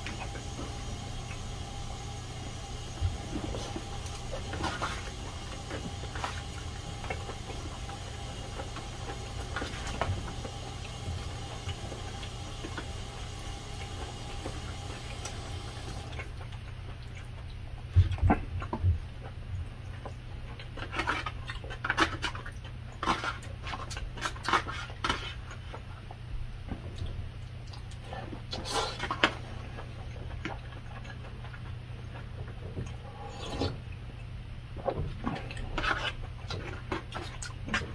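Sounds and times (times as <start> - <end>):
faint steady hum: 0.0 - 37.9
chewing and mouth sounds: 2.8 - 37.9.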